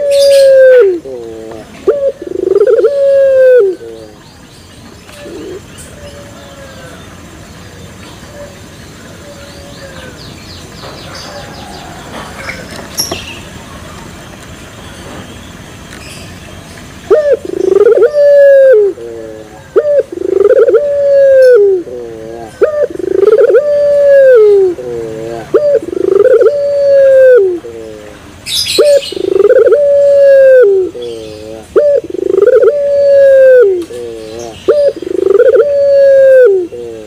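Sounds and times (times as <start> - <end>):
dove cooing: 0.0 - 4.2, 5.1 - 7.0, 17.1 - 37.0.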